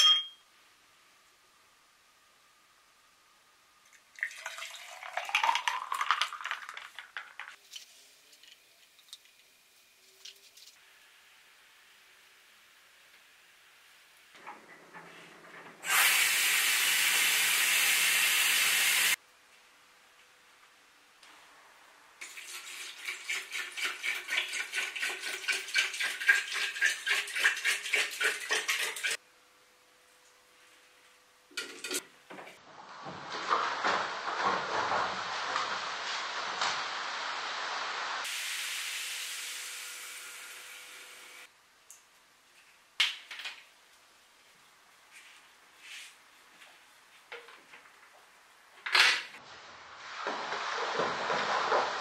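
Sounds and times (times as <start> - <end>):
ice clinking against glass: 0.0 - 0.4
cola glugging from a bottle: 3.9 - 7.5
juice pouring over ice: 3.9 - 7.6.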